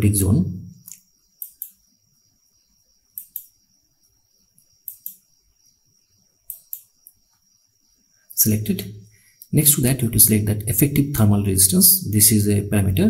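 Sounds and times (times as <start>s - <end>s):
computer mouse button clicking: 0.8s - 1.8s, 3.2s - 3.5s, 4.9s - 5.2s, 6.5s - 6.9s.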